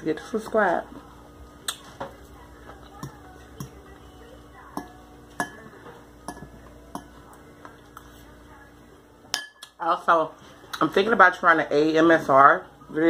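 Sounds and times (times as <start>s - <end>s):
metal fork against glass bowl: 4.8s - 5.7s.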